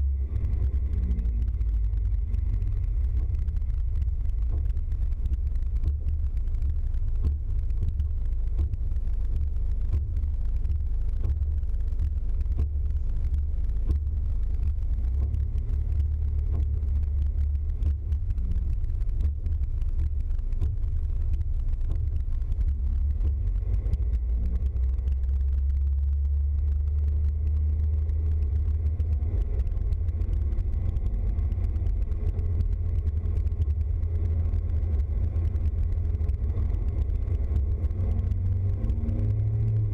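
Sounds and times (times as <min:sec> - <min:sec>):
vehicle engine and road drone: 0:00.0 - 0:39.9.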